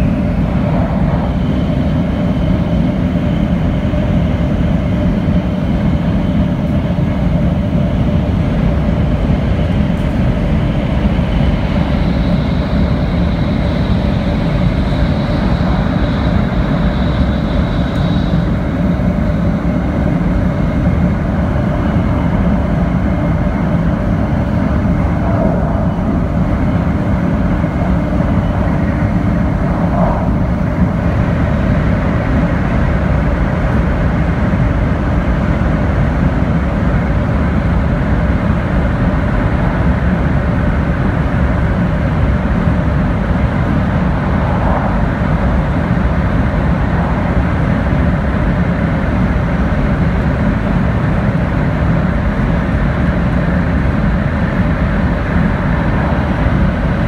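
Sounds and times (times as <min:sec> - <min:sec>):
rushing noise: 0:00.0 - 0:04.2, 0:08.4 - 0:34.5, 0:41.0 - 0:57.0
train cabin rumble: 0:00.0 - 0:57.0.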